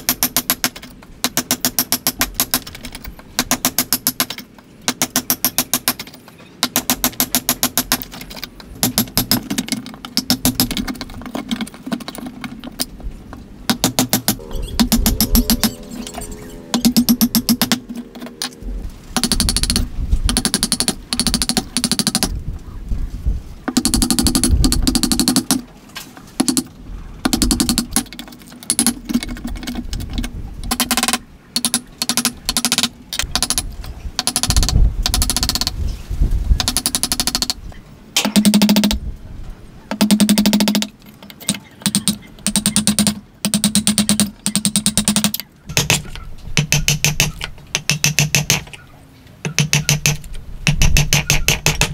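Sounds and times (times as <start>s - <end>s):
mallet knocking on a chisel: 46.6s - 48.7s, 49.5s - 51.9s.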